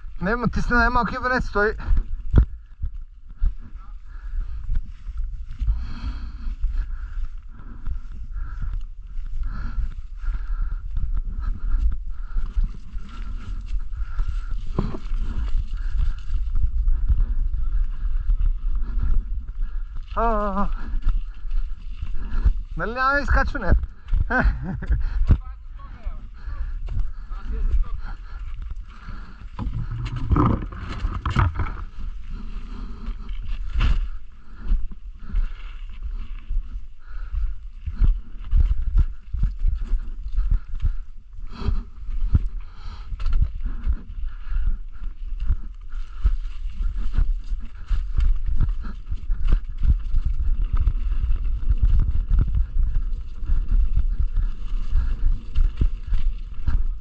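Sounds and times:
bike tyres rolling on dirt and rock: 0:00.0 - 0:57.0
wind buffeting microphone: 0:00.0 - 0:57.0
bike rattling and knocking: 0:28.9 - 0:33.0.

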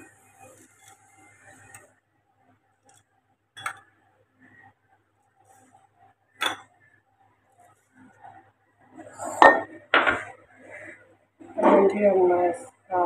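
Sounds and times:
spoon clinking on glass jars: 0:03.6 - 0:03.8.

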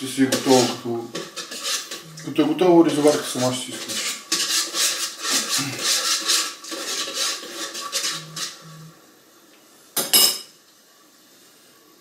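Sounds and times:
spoon scraping metal pot: 0:00.0 - 0:08.9.

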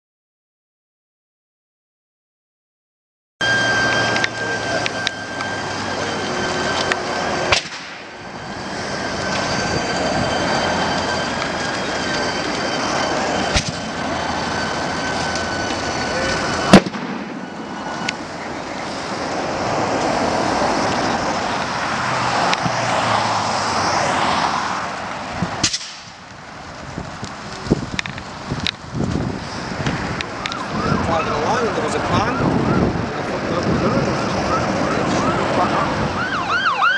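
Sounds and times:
thin high tone: 0:03.4 - 0:21.7
sharp explosion bangs: 0:07.4 - 0:08.2, 0:13.4 - 0:13.9, 0:16.4 - 0:18.4, 0:25.4 - 0:26.2
roar of flames: 0:08.4 - 0:36.2.

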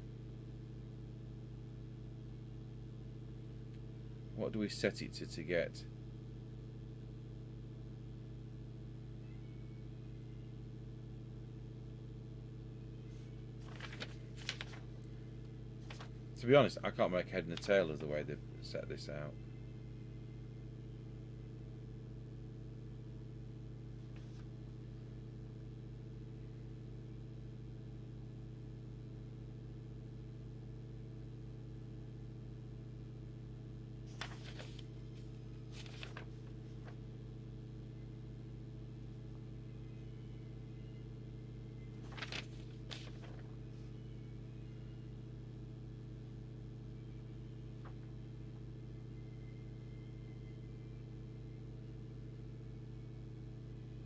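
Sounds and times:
low electrical hum: 0:00.0 - 0:54.0
paper pages rustling: 0:13.6 - 0:15.1, 0:15.8 - 0:16.3, 0:24.1 - 0:24.5, 0:34.1 - 0:37.1, 0:42.0 - 0:44.0.

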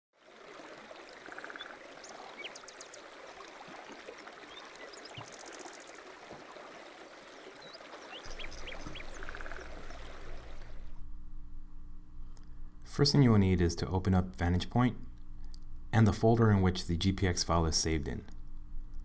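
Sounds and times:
running water: 0:00.2 - 0:11.0
low steady hum: 0:07.3 - 0:19.0
trilling animal calls: 0:08.3 - 0:10.7.

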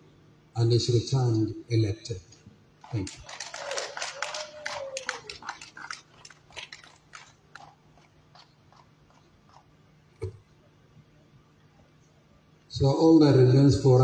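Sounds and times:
people clapping: 0:02.8 - 0:09.7.

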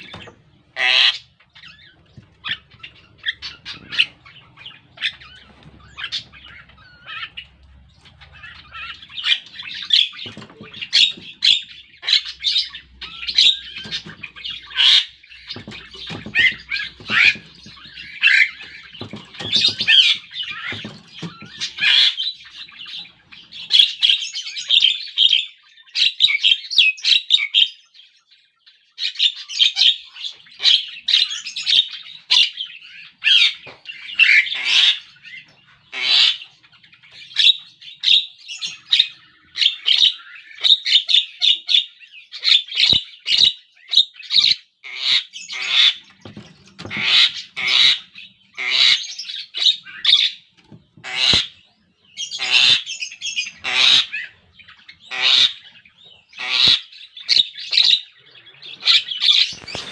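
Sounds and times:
myna chattering and squawking: 0:00.0 - 0:22.2.

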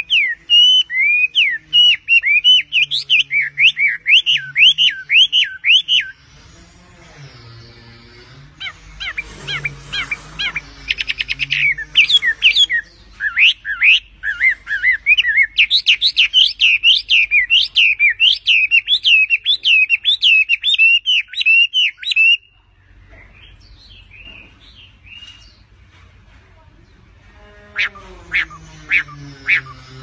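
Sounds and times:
bird singing whistled notes: 0:00.0 - 0:06.2, 0:09.1 - 0:22.5.

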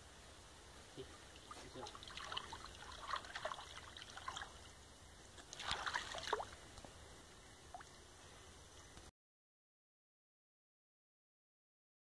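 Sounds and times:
faint water splashing: 0:00.5 - 0:09.0.

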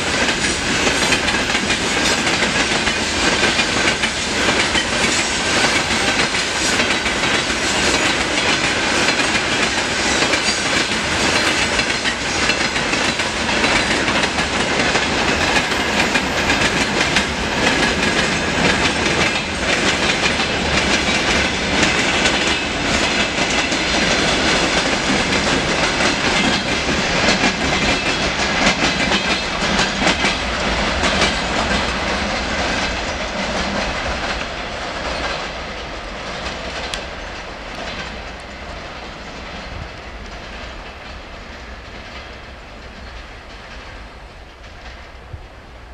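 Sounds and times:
train wheels clacking over rails: 0:00.0 - 0:45.9.

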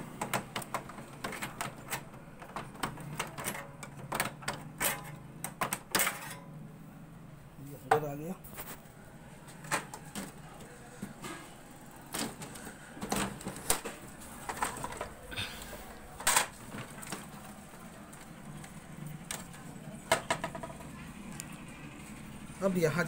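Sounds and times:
clicks taps and knocks on printer: 0:00.1 - 0:06.0, 0:20.1 - 0:20.8.

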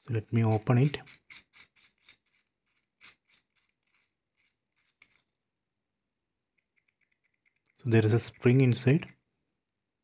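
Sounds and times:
metal barrel clicks and scrapes: 0:00.3 - 0:05.4.

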